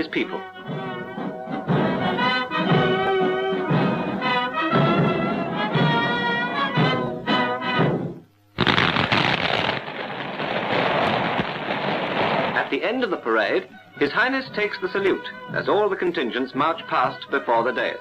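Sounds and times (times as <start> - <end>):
brass band music: 0.0 - 9.6.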